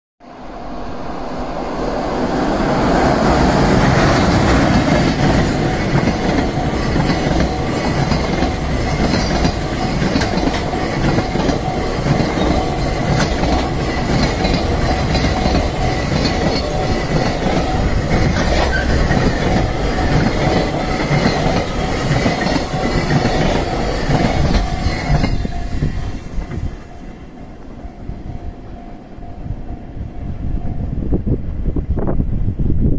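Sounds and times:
freight train wheels clattering: 3.0s - 27.3s
level crossing warning bell: 3.0s - 31.4s.

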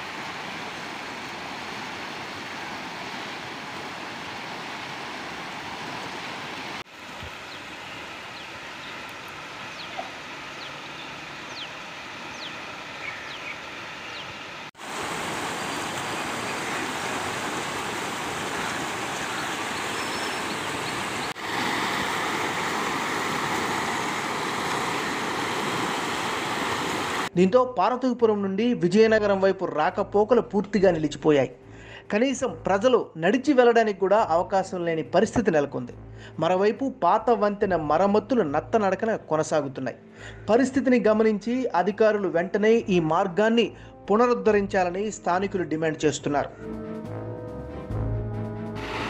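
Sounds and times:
floodwater rushing: 0.0s - 27.3s, 48.8s - 49.0s.

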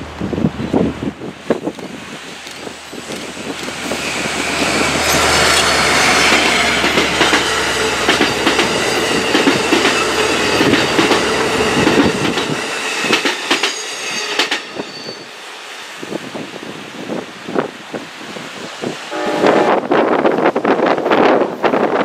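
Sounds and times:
diesel locomotive engine whine: 0.0s - 18.2s, 18.9s - 21.6s
train wheels clicking over rail joints: 1.4s - 14.8s.

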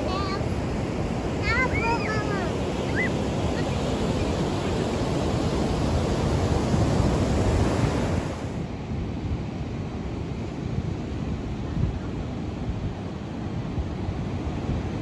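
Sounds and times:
ocean surf breaking: 0.0s - 8.6s
wind rumbling on microphone: 0.0s - 15.0s.

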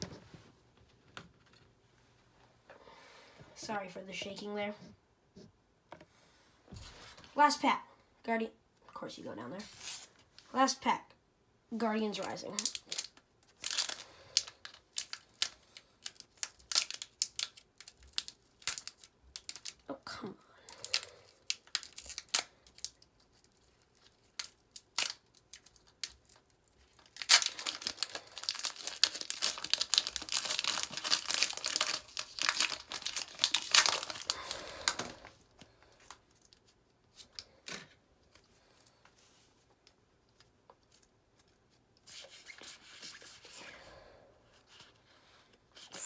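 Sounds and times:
foil wrapper tearing and crinkling: 12.5s - 19.9s, 20.7s - 35.3s.

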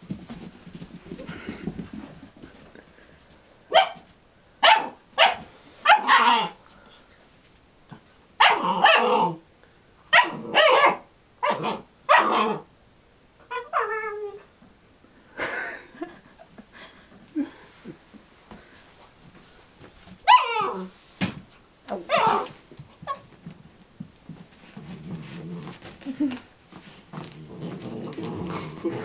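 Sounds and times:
puppy barking: 3.7s - 4.0s, 4.6s - 6.6s, 8.4s - 9.3s, 10.1s - 12.7s, 22.1s - 23.2s
puppy whining call: 13.4s - 14.5s, 20.3s - 20.9s, 22.0s - 23.3s.

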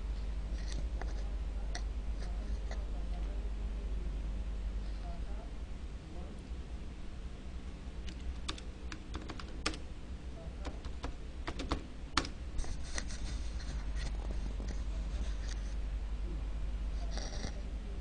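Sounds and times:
steady low hum: 0.0s - 18.0s
keyboard typing: 8.1s - 9.8s, 10.6s - 12.4s.

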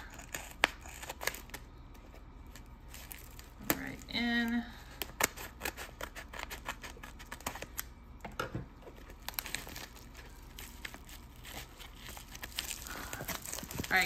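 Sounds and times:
scissors snipping plastic: 0.0s - 1.6s, 2.5s - 7.9s
plastic mailer rustling: 8.7s - 14.0s.

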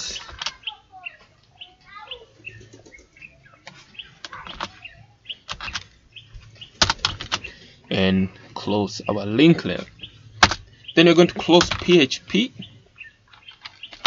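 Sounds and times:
computer keyboard keystrokes: 5.5s - 5.9s.

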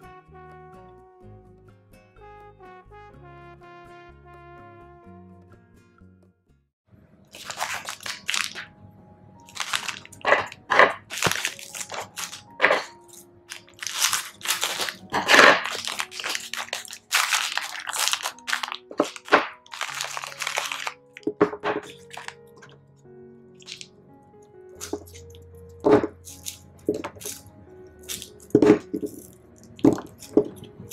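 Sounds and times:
soft background music: 0.0s - 30.9s
plastic wrapper crinkling: 7.3s - 8.7s, 9.4s - 22.8s, 23.6s - 23.9s, 24.8s - 30.9s
scissors cutting: 26.2s - 30.9s.

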